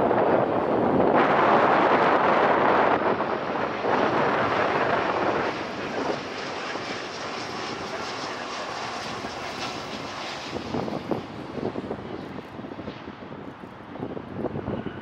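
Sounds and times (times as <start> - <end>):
jet airliner passing low: 0.0 - 15.0
wind buffeting microphone: 0.0 - 15.0.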